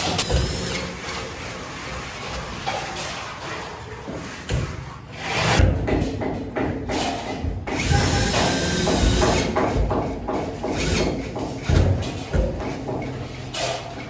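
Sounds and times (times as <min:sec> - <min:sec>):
metal knocks and clatter: 0:05.6 - 0:14.0.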